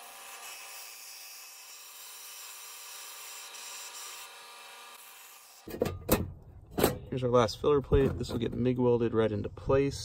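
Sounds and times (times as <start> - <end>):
bandsaw cutting steel sheet: 0.0 - 5.8.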